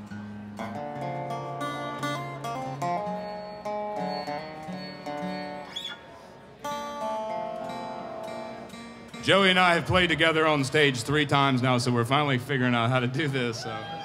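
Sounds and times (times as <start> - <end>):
resonator guitar picking: 0.0 - 11.2
acoustic guitar picking: 0.0 - 11.8.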